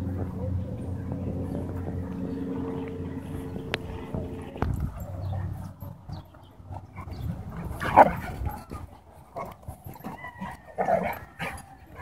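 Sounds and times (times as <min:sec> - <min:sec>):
dogs barking: 0:06.8 - 0:12.0.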